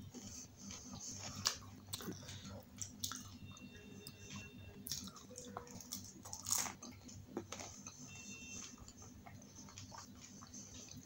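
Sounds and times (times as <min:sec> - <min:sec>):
chewing and biting: 0:00.1 - 0:03.4, 0:04.8 - 0:08.0, 0:08.6 - 0:11.0.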